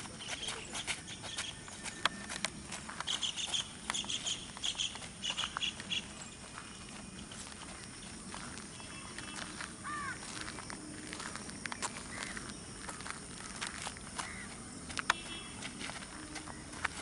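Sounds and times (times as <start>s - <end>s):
footsteps on dirt: 0.0s - 17.0s
bird chirping: 0.1s - 9.7s.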